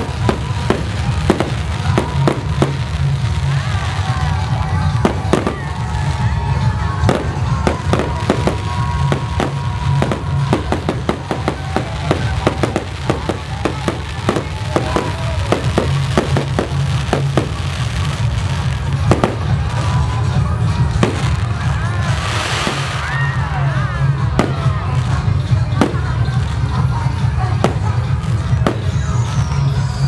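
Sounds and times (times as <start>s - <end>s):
firework shells bursting and crackling: 0.0s - 23.6s
music playing: 0.0s - 30.0s.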